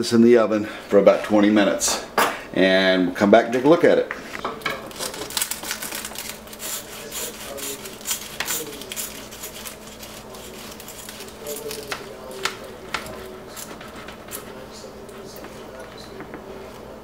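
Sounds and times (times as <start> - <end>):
cleaver cutting crackling pastry: 4.7 - 16.9.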